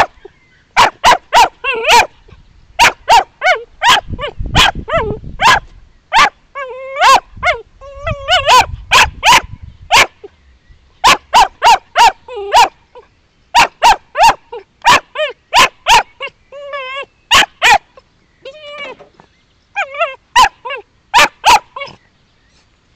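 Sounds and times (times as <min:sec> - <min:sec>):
puppy barking: 0:00.8 - 0:02.2, 0:02.8 - 0:10.3, 0:11.0 - 0:12.8, 0:13.6 - 0:17.9, 0:19.8 - 0:22.0
puppy whining: 0:01.3 - 0:02.2, 0:03.1 - 0:05.6, 0:06.2 - 0:08.7, 0:11.6 - 0:13.0, 0:14.2 - 0:22.0.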